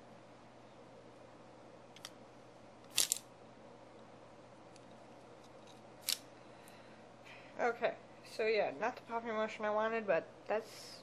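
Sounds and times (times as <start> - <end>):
faint room hum: 0.0 - 11.0
plastic toy snapping open clicks: 2.9 - 3.2, 6.0 - 6.2.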